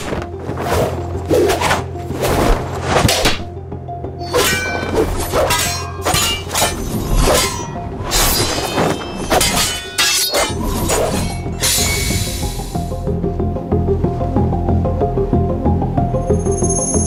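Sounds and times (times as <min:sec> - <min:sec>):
background music with low drone: 0:00.0 - 0:17.0
swishes of swung blades: 0:00.5 - 0:03.5, 0:04.3 - 0:12.0
sharp hits and clashes: 0:04.2 - 0:12.2.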